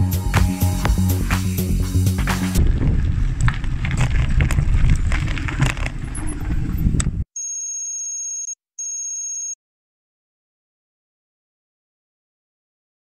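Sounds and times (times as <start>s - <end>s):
wind rumble: 1.2s - 7.3s
bike tyres on gravel: 2.2s - 7.2s.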